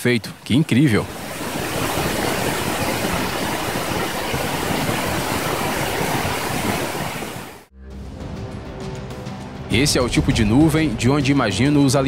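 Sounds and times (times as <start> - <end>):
river water rushing: 0.3 - 7.7.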